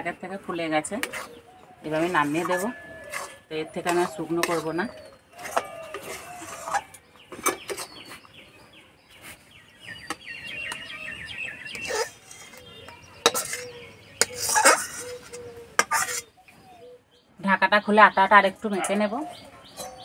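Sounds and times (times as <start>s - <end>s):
birds chirping: 0.0s - 20.0s
metal spatula scraping a pot: 0.2s - 8.2s, 11.7s - 16.4s.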